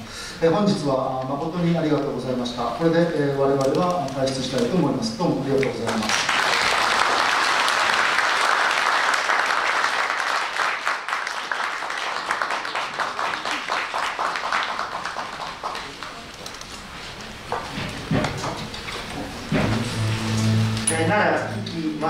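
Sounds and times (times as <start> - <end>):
audience applauding: 5.8 - 16.4.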